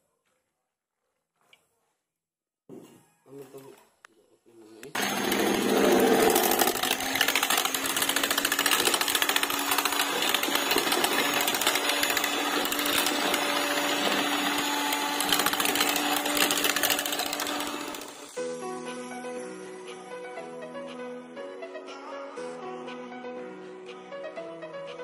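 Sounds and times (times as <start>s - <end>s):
electric mixer beating batter: 5.0s - 18.4s.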